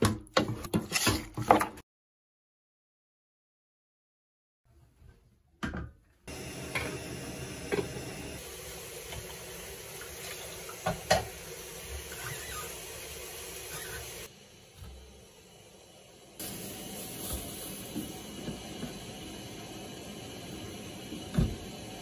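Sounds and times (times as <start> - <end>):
tap running into metal sink: 10.2 - 11.4.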